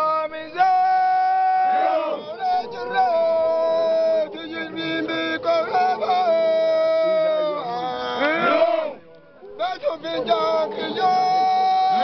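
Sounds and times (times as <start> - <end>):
group of men chanting: 1.6 - 3.0, 7.6 - 9.0, 9.8 - 12.0.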